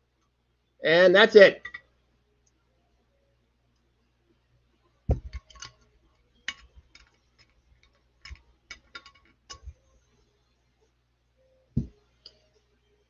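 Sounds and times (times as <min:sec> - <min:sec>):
glass bottle knocking on tabletop: 0:05.1 - 0:05.4
glassy ticks and taps: 0:06.4 - 0:09.8.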